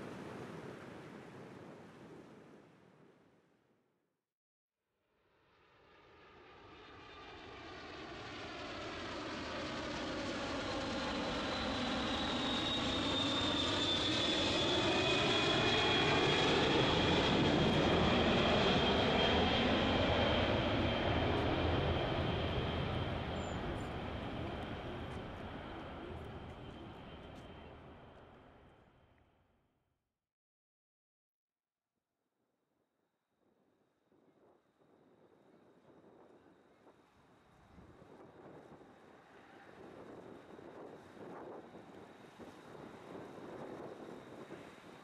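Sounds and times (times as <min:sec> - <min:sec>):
jet airliner roar overhead: 0:05.7 - 0:28.8, 0:34.4 - 0:45.0.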